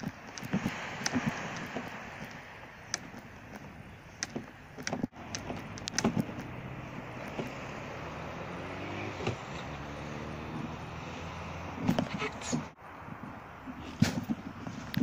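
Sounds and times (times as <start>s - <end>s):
kayak rattling on a cart: 0.0s - 7.6s.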